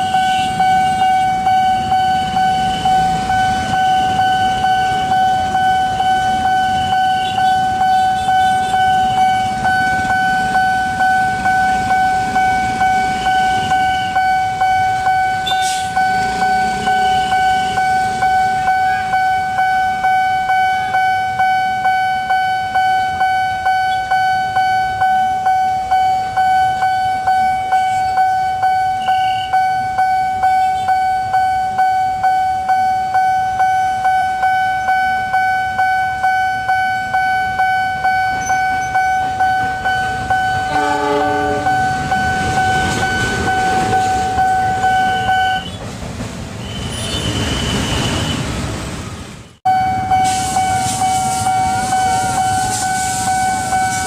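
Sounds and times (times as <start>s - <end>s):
locomotive horn: 0.0s - 1.3s, 40.6s - 45.8s
locomotive rumble: 0.0s - 21.0s, 37.9s - 54.0s
level-crossing warning bell: 0.0s - 45.8s, 49.7s - 54.0s.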